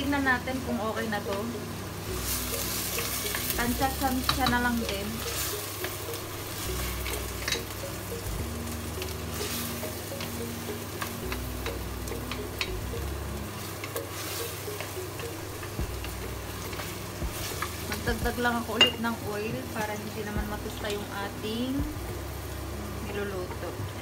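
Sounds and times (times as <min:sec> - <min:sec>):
sizzle of frying: 0:00.0 - 0:24.0
spoon stirring and scraping pot: 0:13.8 - 0:17.9.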